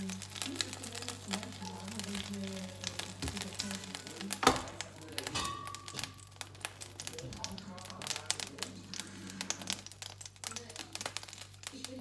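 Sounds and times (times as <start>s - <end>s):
faint background music with voice: 0.0s - 6.1s
oil crackling in a pan: 0.0s - 12.0s.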